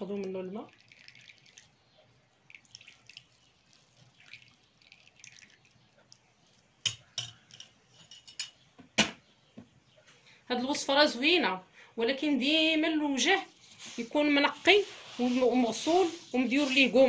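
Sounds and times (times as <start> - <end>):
juice dripping into bowl: 0.0 - 6.9.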